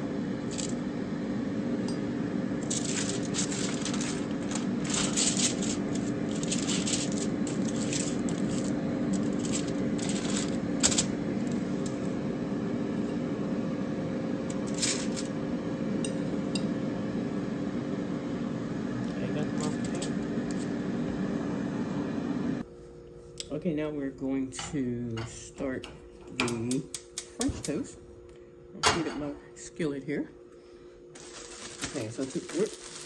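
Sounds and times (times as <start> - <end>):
steady low hum: 0.0 - 33.0
foil crinkling: 2.6 - 11.6, 14.6 - 15.3, 31.2 - 33.0.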